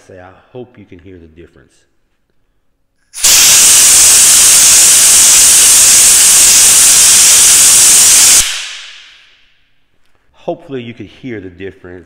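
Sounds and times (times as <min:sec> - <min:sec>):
air blow gun hissing: 0:03.2 - 0:09.4.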